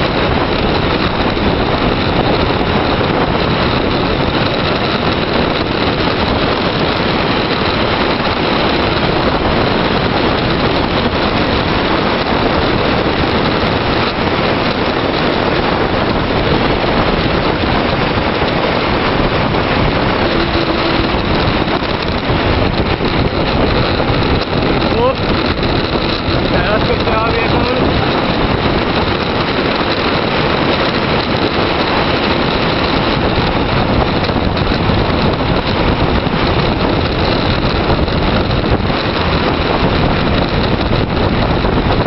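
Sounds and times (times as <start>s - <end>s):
wind rushing over microphone: 0.0s - 42.0s.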